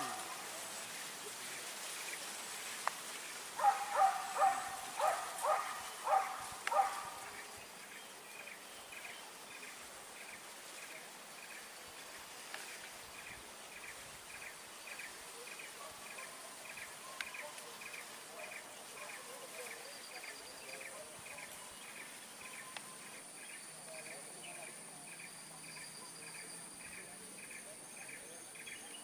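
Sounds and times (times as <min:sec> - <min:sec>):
distant dogs barking: 0:00.0 - 0:00.8, 0:03.5 - 0:07.6, 0:15.2 - 0:22.2.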